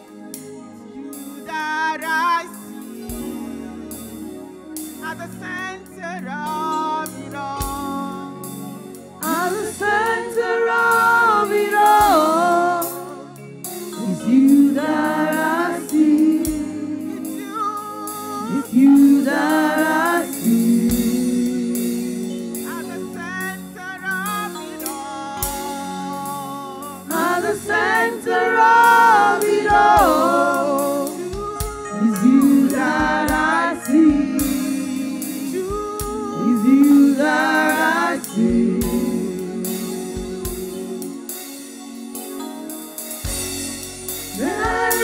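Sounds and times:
instrumental backing: 0.0s - 45.0s
women singing worship song: 9.2s - 23.0s, 25.4s - 41.1s, 44.2s - 45.0s.

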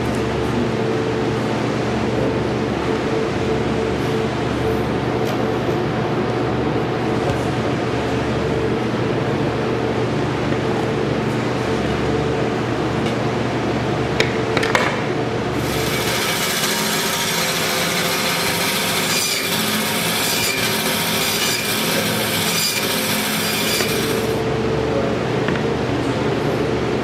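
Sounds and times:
machine hum: 0.0s - 27.0s
meat saw cutting bone: 15.6s - 24.4s.

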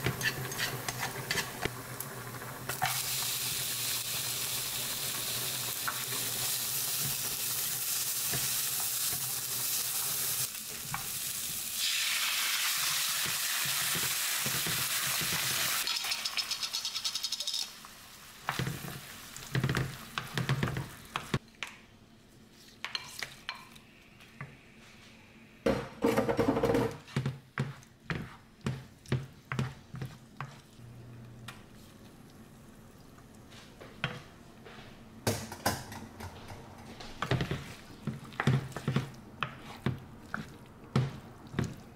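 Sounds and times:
wooden spoon stirring in pan: 0.0s - 1.8s, 18.4s - 21.4s, 26.9s - 34.1s, 36.8s - 41.9s
onion sizzling in oil: 0.0s - 21.4s.

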